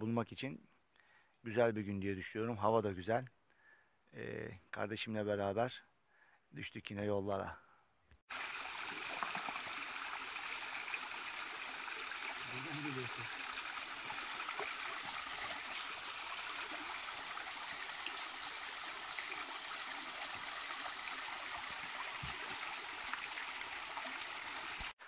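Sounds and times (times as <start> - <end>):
creek water babbling over stones: 8.3 - 25.0.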